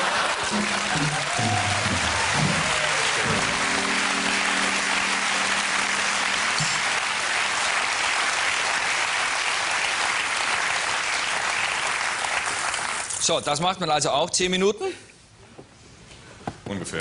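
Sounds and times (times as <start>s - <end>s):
studio audience applauding: 0.0s - 13.3s
band holding a chord: 0.5s - 8.5s.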